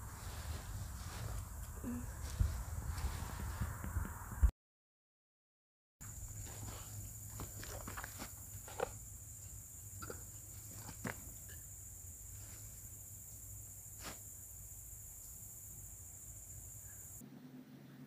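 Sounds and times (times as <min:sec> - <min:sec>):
insect chirring: 0:06.0 - 0:17.2.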